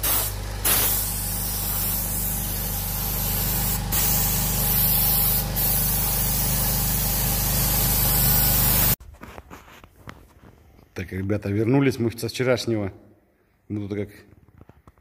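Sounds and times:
paint spray gun hissing: 0:00.0 - 0:09.0.

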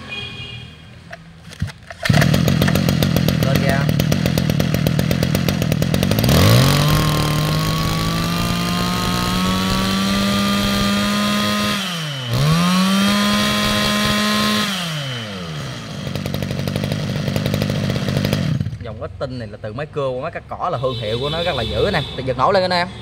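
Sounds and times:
brush cutter engine revving: 0:01.5 - 0:18.9.

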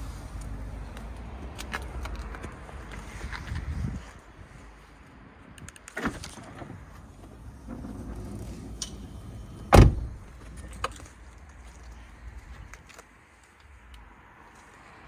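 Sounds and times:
sliding door humming open: 0:06.0 - 0:10.2
sliding door thump: 0:06.0 - 0:10.2
car door shutting: 0:06.0 - 0:10.4.

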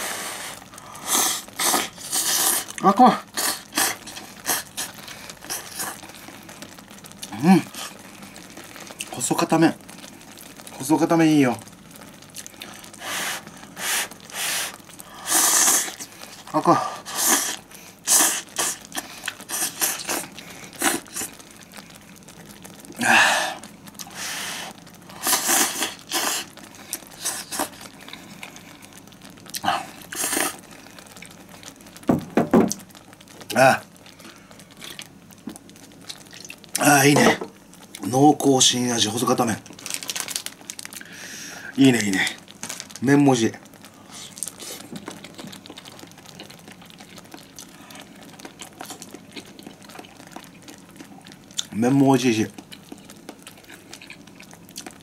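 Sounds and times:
person slurping noodles: 0:00.0 - 0:06.1, 0:12.9 - 0:16.1, 0:16.7 - 0:21.4, 0:23.0 - 0:27.9, 0:29.5 - 0:30.6
person chewing noodles: 0:00.0 - 0:09.1, 0:12.2 - 0:32.0, 0:32.7 - 0:36.8, 0:39.6 - 0:43.0, 0:43.6 - 0:51.8, 0:52.5 - 0:55.0.

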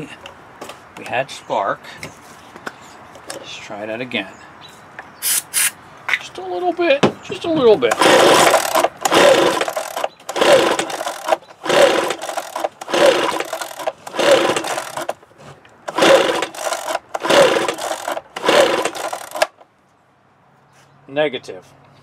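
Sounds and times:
small engine cranking whir: 0:07.8 - 0:15.2, 0:15.9 - 0:19.6
recoil starter rope pulls: 0:07.8 - 0:19.6.

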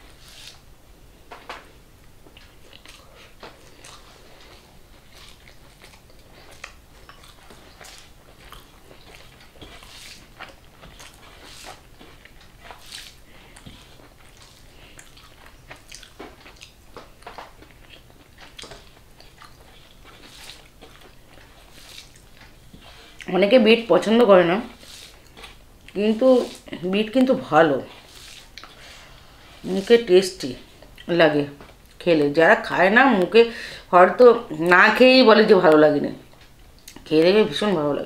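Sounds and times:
person chewing food: 0:01.3 - 0:32.0, 0:36.3 - 0:37.0
mouth clicks and crunches: 0:02.0 - 0:23.3.

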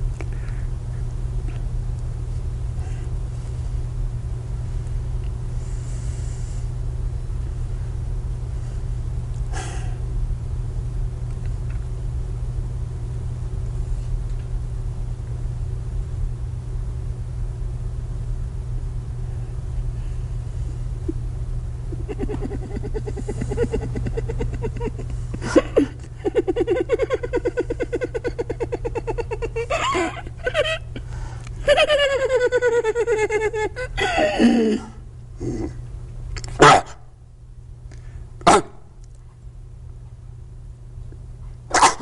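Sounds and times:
videotape hum and rumble: 0:00.0 - 0:42.0.

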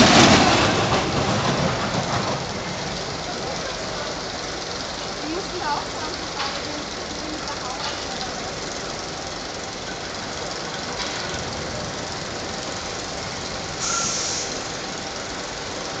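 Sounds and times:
roller coaster rumble and clatter: 0:00.0 - 0:16.0
short hiss with high tone: 0:13.8 - 0:14.8.

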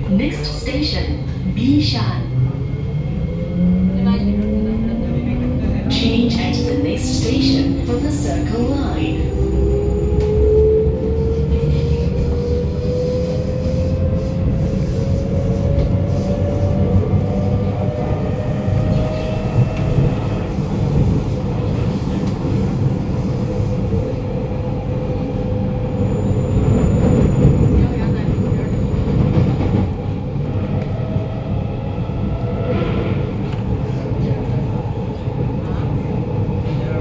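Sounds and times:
train wheels rumbling on rail: 0:00.0 - 0:37.0.

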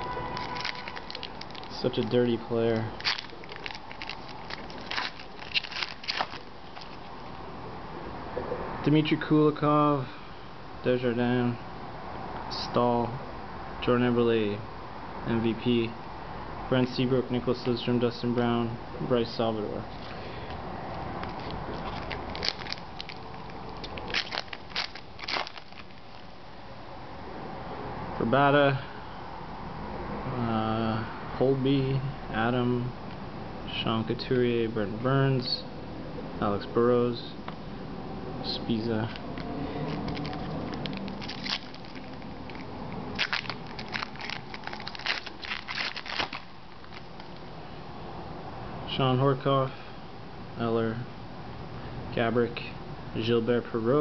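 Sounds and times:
foil wrapper tearing and crinkling: 0:00.0 - 0:07.2, 0:21.2 - 0:26.3, 0:39.2 - 0:47.4.

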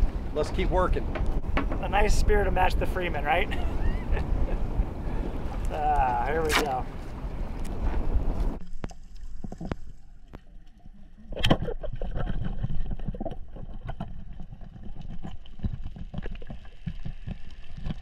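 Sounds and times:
wind on microphone: 0:00.0 - 0:08.6
underwater rumble: 0:00.0 - 0:18.0
clicks and crackle: 0:08.6 - 0:18.0.

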